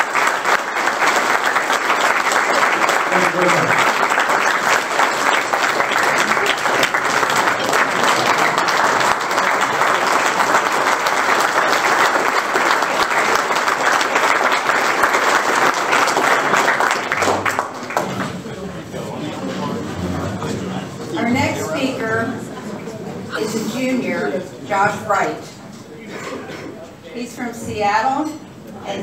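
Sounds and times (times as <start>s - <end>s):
people applauding: 0.0s - 20.6s.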